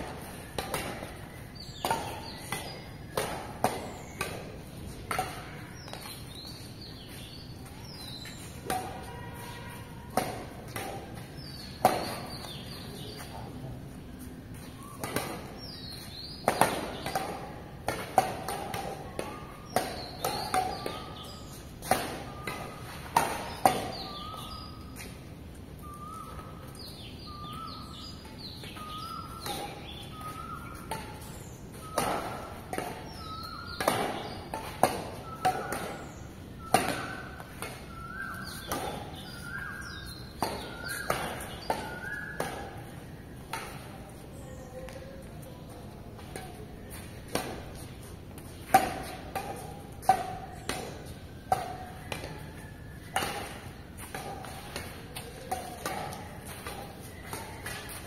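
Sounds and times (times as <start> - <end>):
rackets hitting shuttlecock: 0.0 - 58.0
high chirping squeaks: 37.0 - 42.4.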